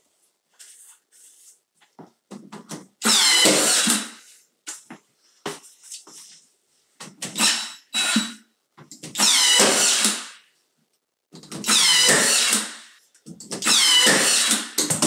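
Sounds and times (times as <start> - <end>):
nail gun firing with whine: 3.0 - 4.2, 9.1 - 10.4, 11.5 - 13.0, 13.6 - 15.0.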